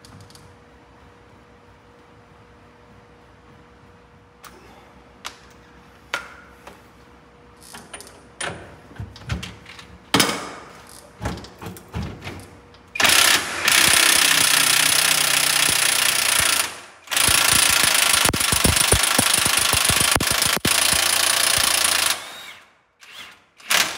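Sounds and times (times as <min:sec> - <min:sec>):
pneumatic air hammer: 0:13.0 - 0:23.9.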